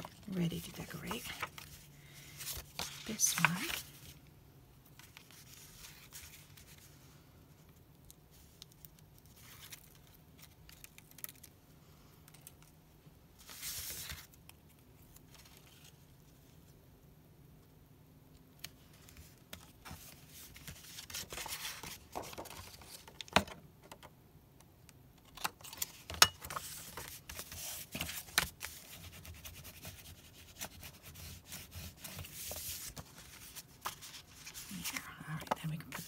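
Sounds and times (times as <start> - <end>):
paper rustling and rubbing: 0.0 - 4.2, 5.0 - 7.0, 13.4 - 14.4, 18.8 - 23.1, 25.7 - 36.0.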